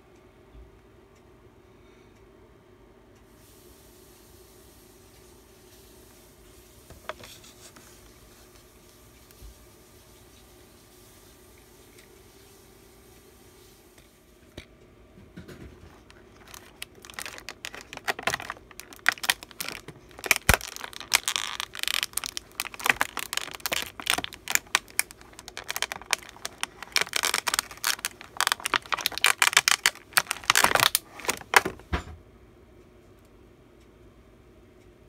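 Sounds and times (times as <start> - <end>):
plastic packaging crinkling: 15.8 - 31.8.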